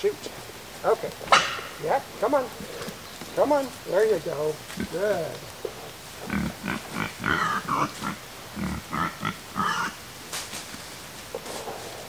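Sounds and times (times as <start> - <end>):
pigs grunting: 0.9 - 10.1.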